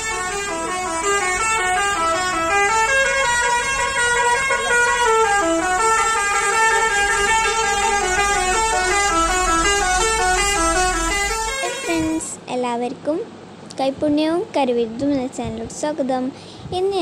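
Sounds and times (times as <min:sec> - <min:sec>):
bus musical horn playing tune: 0:00.0 - 0:12.4
low rumble: 0:05.4 - 0:12.4.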